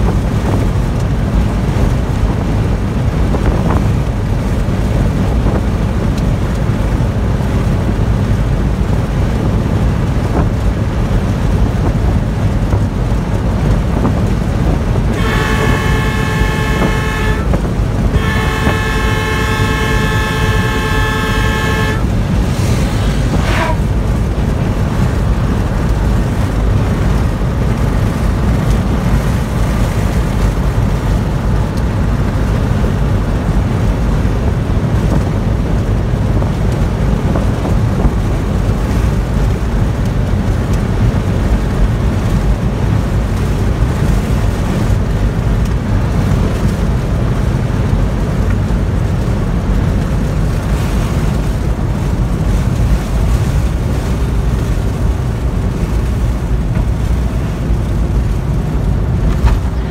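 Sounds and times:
car driving rumble: 0:00.0 - 0:59.9
car horn blasts: 0:15.1 - 0:22.4, 0:23.3 - 0:23.9, 0:59.6 - 0:59.9.

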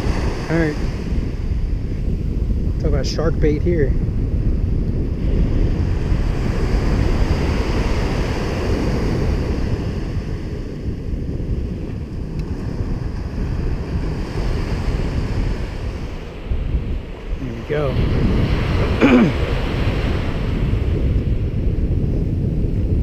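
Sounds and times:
surf breaking on beach: 0:00.0 - 0:03.4, 0:04.2 - 0:22.1
wind buffeting microphone: 0:00.0 - 0:23.0.

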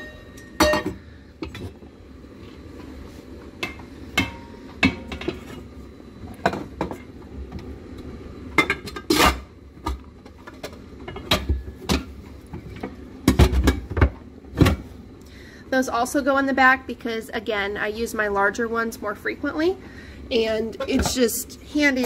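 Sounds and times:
metal saucepans clanking: 0:00.0 - 0:01.6.

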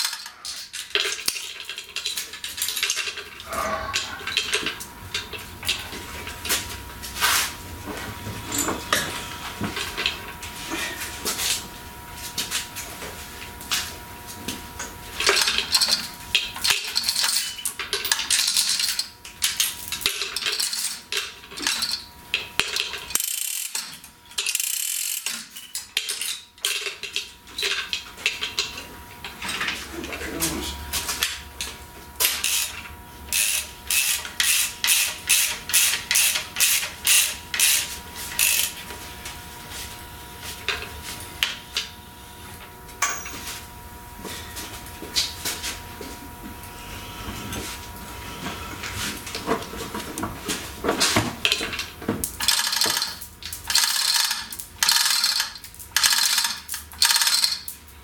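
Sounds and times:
ratchet clicks: 0:22.6 - 0:26.8, 0:32.4 - 0:38.8, 0:52.4 - 0:57.8.

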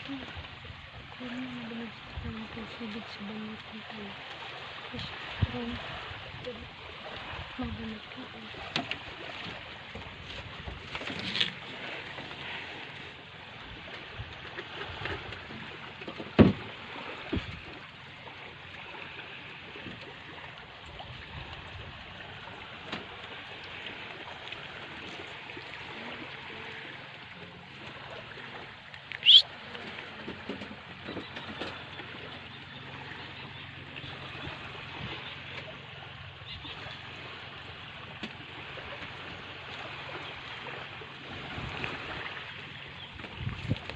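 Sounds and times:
wind and water at shore: 0:00.0 - 0:43.9
short high rising chirp: 0:29.2 - 0:29.4.

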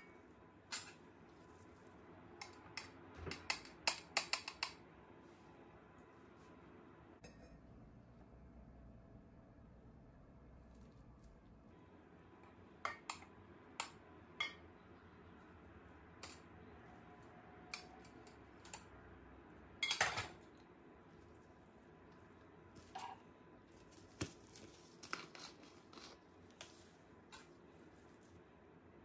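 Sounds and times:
metal spoon clinking on pot: 0:19.8 - 0:20.4.

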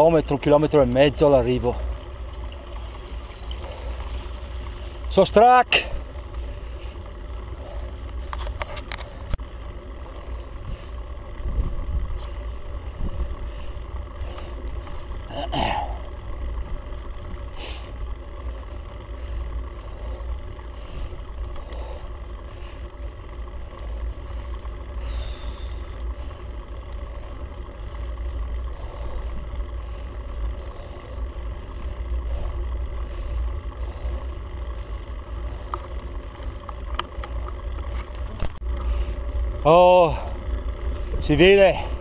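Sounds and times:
vehicle engine under load: 0:00.0 - 0:42.0
wind and road noise: 0:00.0 - 0:42.0.

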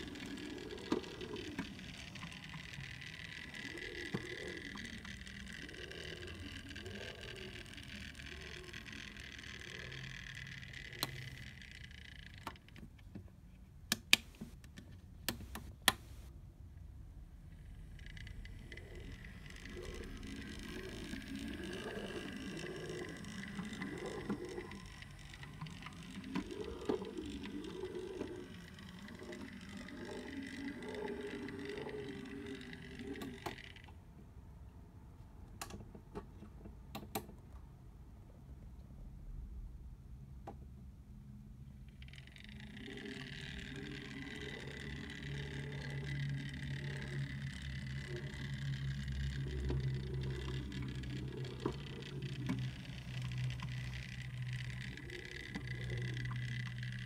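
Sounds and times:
small electric motor whining: 0:00.0 - 0:12.8, 0:17.6 - 0:33.9, 0:41.9 - 0:57.0
sharp clicks: 0:13.9 - 0:16.3
wavering low hum: 0:17.0 - 0:34.0, 0:41.0 - 0:57.0.

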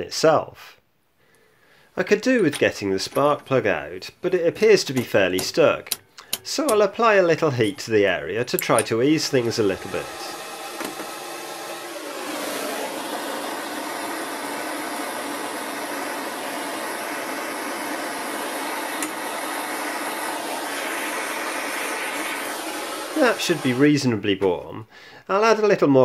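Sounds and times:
blowtorch flame hissing: 0:09.2 - 0:24.0.

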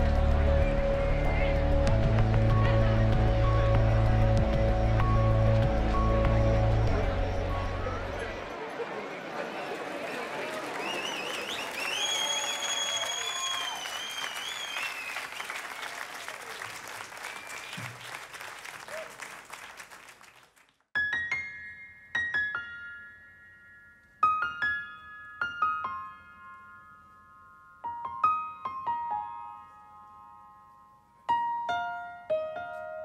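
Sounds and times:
slow grand piano melody: 0:00.0 - 0:08.5, 0:21.0 - 0:33.0
audience applause: 0:05.2 - 0:20.8.

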